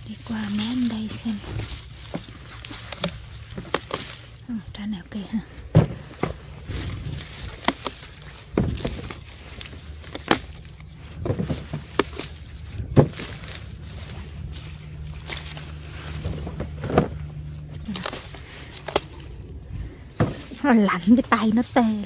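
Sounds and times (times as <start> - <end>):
low steady hum: 0.0 - 22.0
plants rustling and snapping: 0.0 - 22.0.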